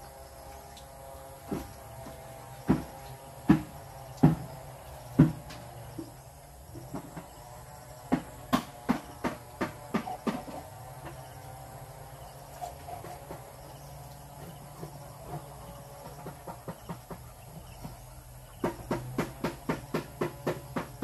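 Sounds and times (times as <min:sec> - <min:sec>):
steady low hum: 0:00.0 - 0:21.0
hard knocks on concrete blocks: 0:01.4 - 0:06.2, 0:08.0 - 0:11.2, 0:18.6 - 0:21.0.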